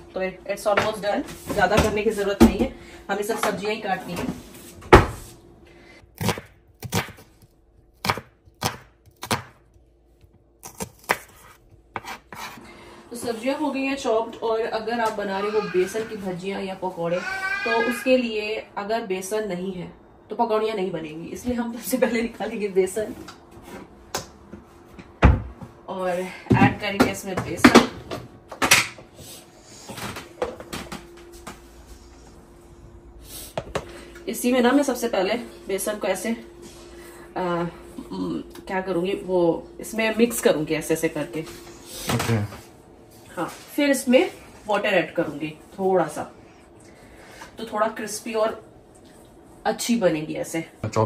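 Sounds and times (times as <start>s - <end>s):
knife chopping on cutting board: 6.2s - 7.2s, 8.0s - 9.6s, 10.6s - 12.6s.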